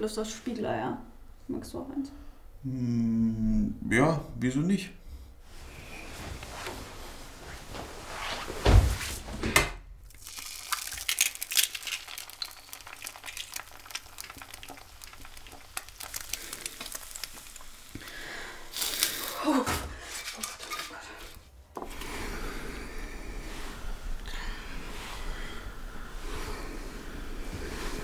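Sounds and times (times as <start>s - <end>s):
eggs sizzling in a pan: 10.1s - 19.4s.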